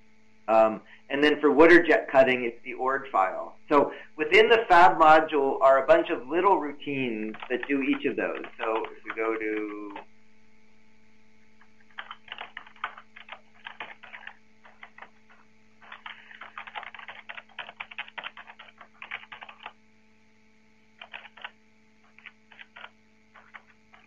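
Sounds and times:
steady low hum: 0.0s - 24.0s
typing on computer keyboard: 7.3s - 10.0s, 11.9s - 19.8s, 21.0s - 24.0s.

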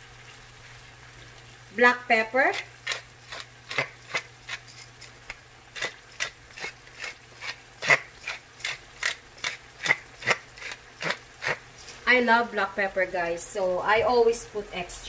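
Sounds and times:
pepper grinder clicking: 2.8s - 4.6s, 5.8s - 11.6s.

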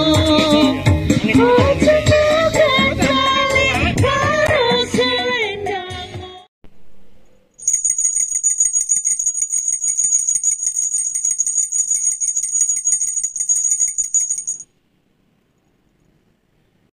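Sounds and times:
jingle bells shaken: 7.6s - 14.6s.

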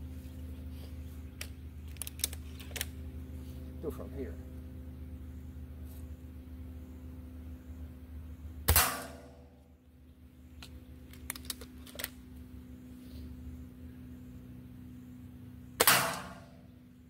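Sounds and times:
air rifle shot: 8.7s - 9.4s, 15.8s - 16.6s.

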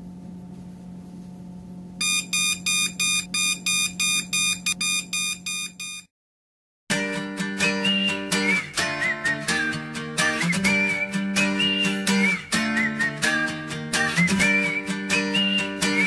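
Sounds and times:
low steady hum: 0.0s - 6.0s
high-pitched alarm clock beeps: 2.0s - 6.1s
strummed acoustic guitar music: 6.9s - 16.0s
whistling: 7.8s - 16.0s.

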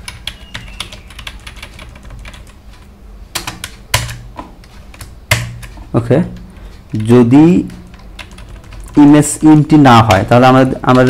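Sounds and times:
keyboard typing: 0.0s - 11.0s.

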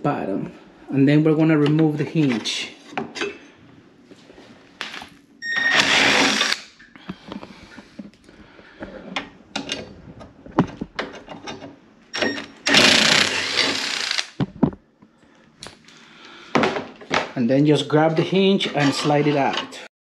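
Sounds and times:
power drill motor running: 5.7s - 6.6s, 12.2s - 14.4s.

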